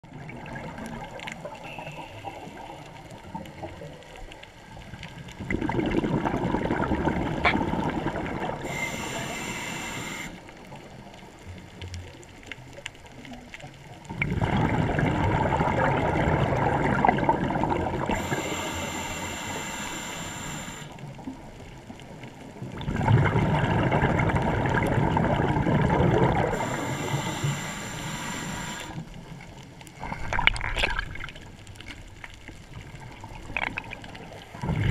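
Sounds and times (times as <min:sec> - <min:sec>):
underwater rushing water: 0:00.0 - 0:34.9
high hiss: 0:08.6 - 0:10.5, 0:18.1 - 0:21.0, 0:26.5 - 0:29.0.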